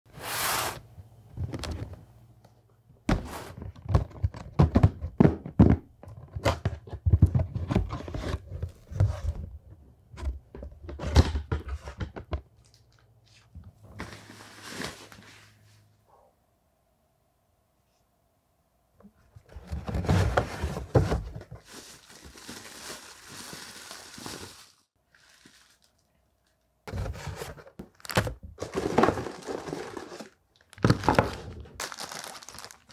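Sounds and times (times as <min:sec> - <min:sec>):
cardboard rustling: 0:19.4 - 0:26.0, 0:26.9 - 0:32.9.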